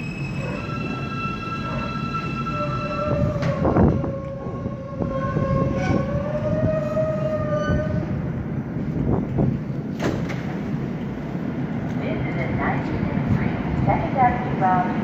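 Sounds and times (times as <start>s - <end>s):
subway train electric motor whine: 0.0s - 9.9s
wheels rumbling on rail: 0.0s - 15.0s.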